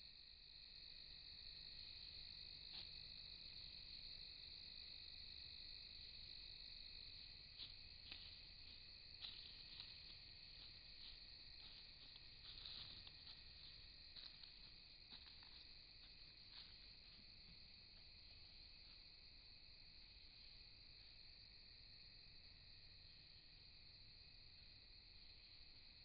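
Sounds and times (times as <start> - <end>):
crickets trilling: 0.0 - 26.0
faint clicks and rustles: 7.6 - 17.2.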